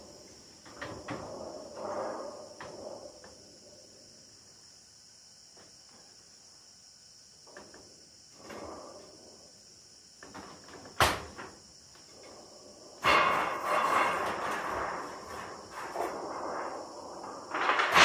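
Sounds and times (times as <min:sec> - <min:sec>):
metal sheet scraping over roof: 0:00.7 - 0:03.4, 0:13.0 - 0:18.0
metallic clang of iron sheet: 0:13.0 - 0:18.0.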